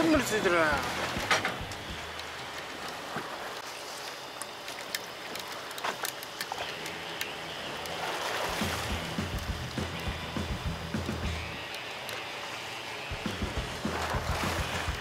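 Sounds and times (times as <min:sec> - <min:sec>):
water splashing against boat hull: 0:00.0 - 0:15.0
low rumble: 0:00.8 - 0:02.2, 0:08.5 - 0:11.6, 0:13.2 - 0:15.0.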